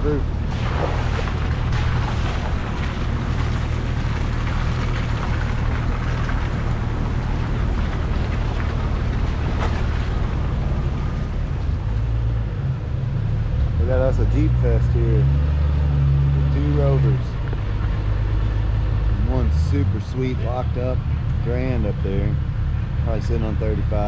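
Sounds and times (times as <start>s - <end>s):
jeep engine running: 0.0s - 24.0s
tyres and body clicking and knocking: 17.3s - 18.6s.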